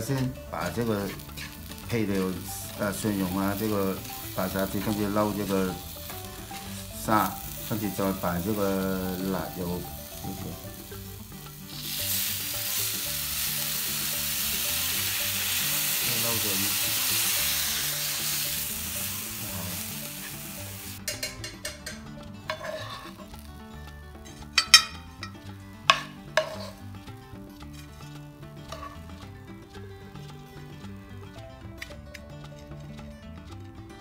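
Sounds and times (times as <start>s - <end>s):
metal spoon scraping pan: 0.0s - 2.4s, 21.1s - 23.4s, 24.2s - 26.9s, 27.6s - 29.3s
chopsticks stirring: 0.0s - 10.9s, 22.5s - 23.2s, 24.5s - 26.8s, 27.6s - 29.2s
sauce sizzling in hot pan: 0.0s - 23.8s, 24.4s - 29.8s.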